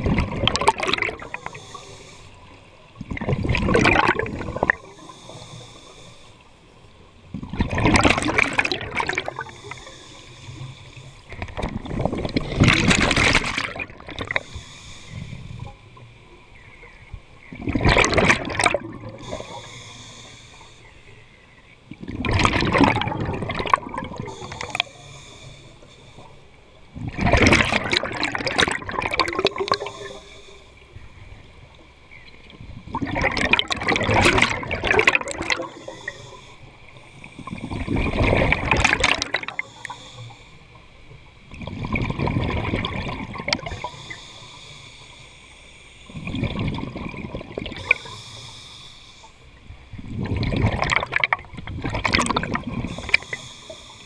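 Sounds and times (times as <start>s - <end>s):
diver exhaling bubbles underwater: 0.0s - 1.4s, 3.0s - 4.9s, 7.4s - 9.5s, 11.4s - 14.4s, 17.6s - 19.6s, 22.0s - 24.8s, 27.0s - 30.2s, 32.8s - 36.3s, 37.3s - 39.9s, 41.6s - 43.9s, 46.2s - 48.2s, 50.0s - 53.4s
faint regulator hiss: 1.0s - 3.1s, 4.6s - 7.3s, 9.2s - 12.4s, 14.2s - 17.6s, 19.0s - 22.0s, 24.0s - 27.0s, 29.2s - 32.8s, 35.2s - 41.6s, 43.1s - 50.2s, 52.6s - 54.0s.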